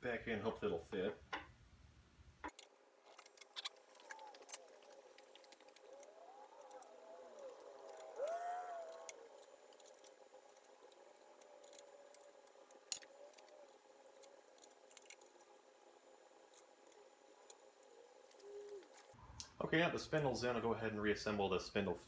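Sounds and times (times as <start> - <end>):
wavering pitched sound: 4.0 - 10.4.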